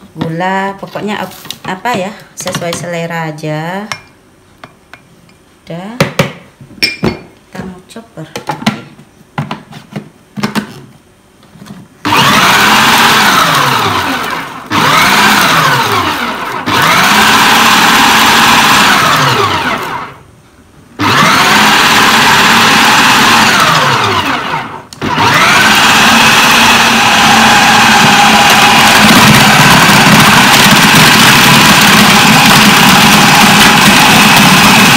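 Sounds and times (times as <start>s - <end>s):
food processor motor whine: 12.0s - 20.2s, 21.0s - 34.9s.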